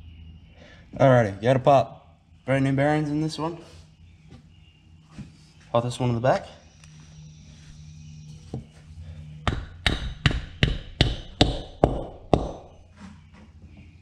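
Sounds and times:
hammer striking metal bearing: 0:09.4 - 0:12.8.

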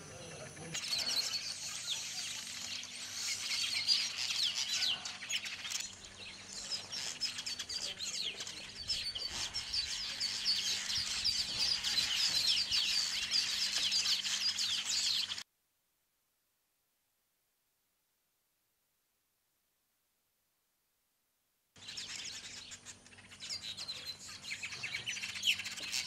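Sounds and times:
weaver birds chattering: 0:00.0 - 0:15.4, 0:21.8 - 0:26.0.

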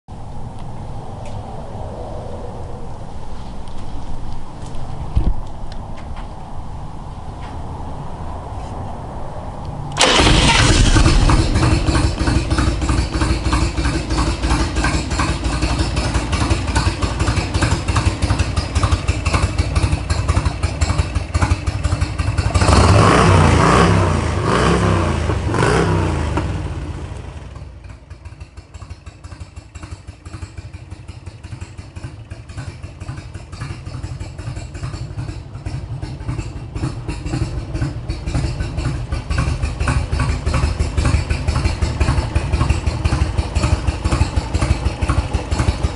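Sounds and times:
motorcycle engine idling: 0:10.0 - 0:23.0, 0:26.3 - 0:45.9.

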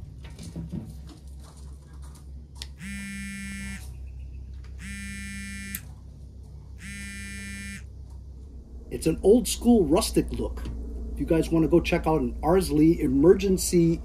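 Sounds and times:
steady low hum: 0:02.7 - 0:14.0
electronic buzzer: 0:02.8 - 0:03.9, 0:04.8 - 0:05.8, 0:06.8 - 0:07.8.

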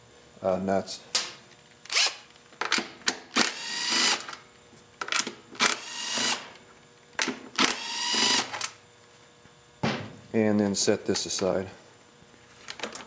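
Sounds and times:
cordless drill motor whine: 0:01.9 - 0:02.2, 0:03.4 - 0:04.3, 0:05.6 - 0:06.6, 0:07.6 - 0:08.6.

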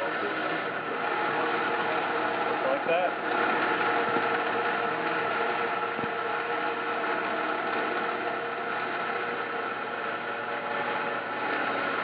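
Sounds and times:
band saw cutting rock: 0:00.0 - 0:12.0.

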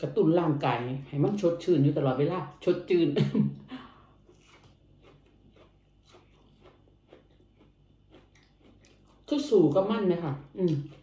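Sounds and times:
person chewing crunchy food: 0:04.0 - 0:09.6, 0:10.4 - 0:11.0
person speaking: 0:09.3 - 0:11.0.

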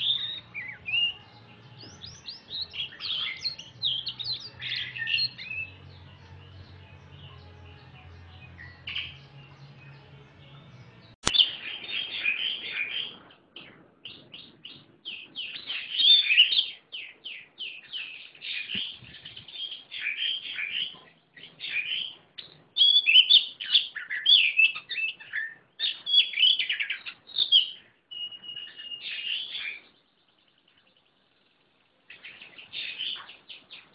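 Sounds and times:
songbird singing: 0:00.0 - 0:33.9
sharp click: 0:11.2 - 0:11.4.

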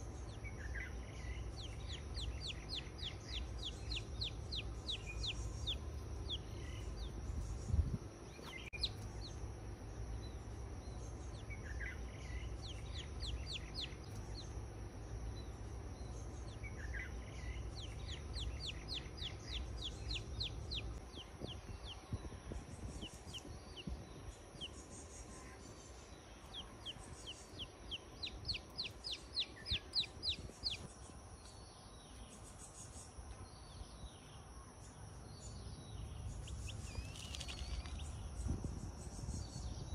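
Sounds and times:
low outdoor rumble: 0:00.0 - 0:39.9
chick peeping: 0:00.3 - 0:09.4, 0:11.3 - 0:14.5, 0:16.5 - 0:30.9.

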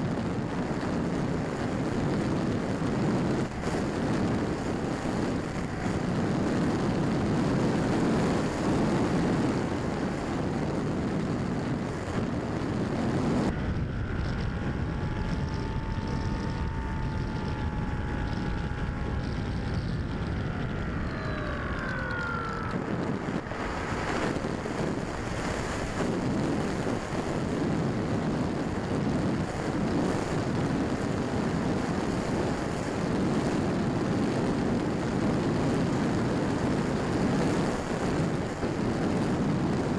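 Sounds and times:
electric motor whine: 0:00.0 - 0:31.3
wind and propeller rush: 0:00.0 - 0:39.9.

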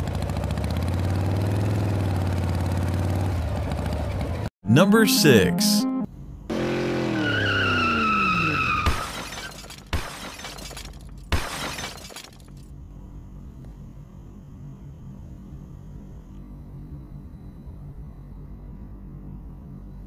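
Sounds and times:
crash with glass shattering: 0:08.9 - 0:12.6
faint low hum: 0:12.6 - 0:20.0.

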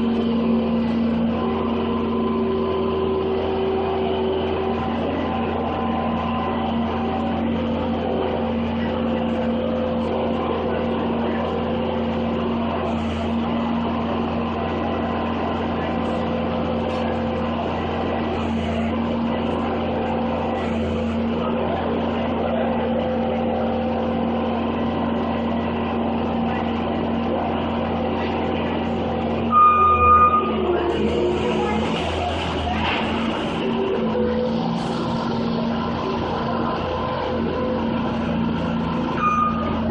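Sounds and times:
loader engine running: 0:00.0 - 0:39.9
brief high-pitched tone: 0:29.5 - 0:30.6, 0:39.2 - 0:39.9.

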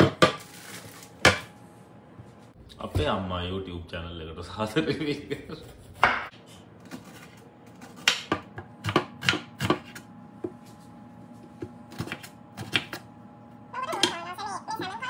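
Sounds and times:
knife chopping on wooden board: 0:07.9 - 0:10.6.

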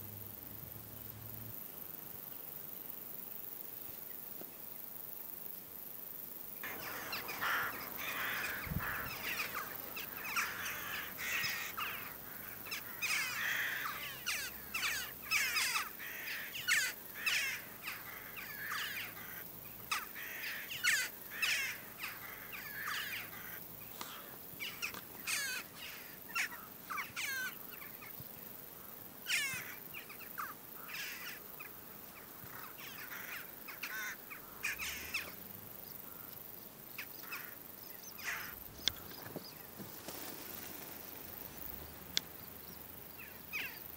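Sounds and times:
jackdaws calling: 0:06.6 - 0:28.2, 0:29.2 - 0:35.4, 0:37.0 - 0:43.9.

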